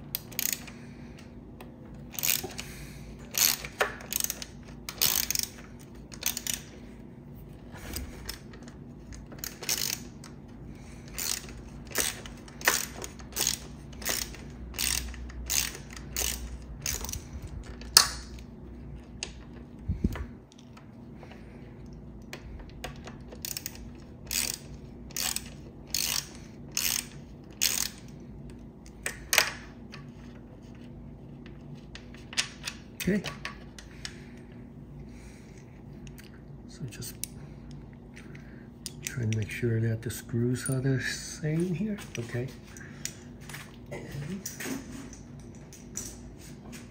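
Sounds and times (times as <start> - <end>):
ratcheting screwdriver clicking: 0.1 - 0.8, 2.0 - 2.7, 3.3 - 6.8, 8.2 - 10.4, 11.1 - 18.5, 21.8 - 30.0.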